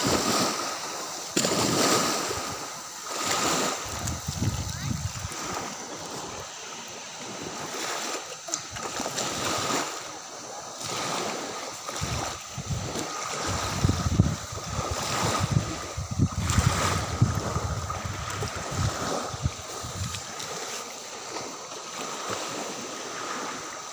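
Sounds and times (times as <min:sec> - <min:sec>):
beach wind and surf: 0:00.0 - 0:23.9
wind buffeting microphone: 0:03.2 - 0:06.5, 0:11.9 - 0:20.6.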